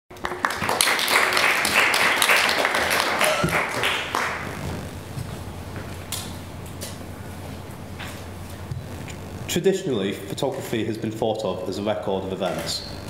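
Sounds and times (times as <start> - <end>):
audience applause: 0.1 - 4.7.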